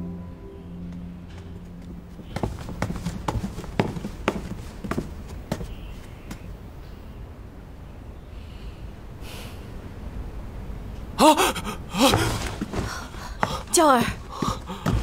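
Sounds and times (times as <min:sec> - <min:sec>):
footsteps on hard floor: 0:01.4 - 0:06.5, 0:12.0 - 0:15.0.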